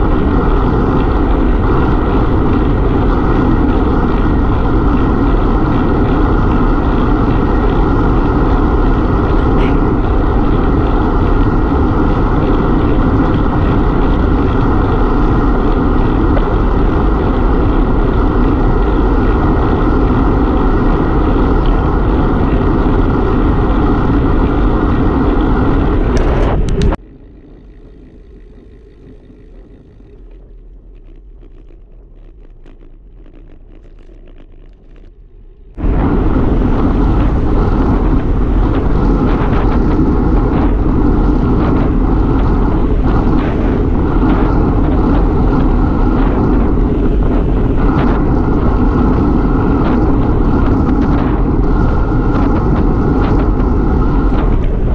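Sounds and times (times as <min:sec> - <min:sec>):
tyre noise on asphalt: 0:00.0 - 0:54.9
wind rushing over microphone: 0:00.0 - 0:54.9
faint ticks: 0:27.4 - 0:35.2.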